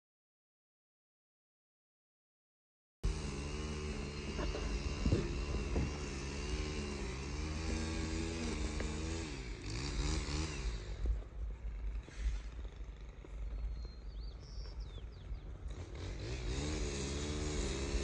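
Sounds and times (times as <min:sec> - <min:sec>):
engine idling: 0:03.1 - 0:09.8.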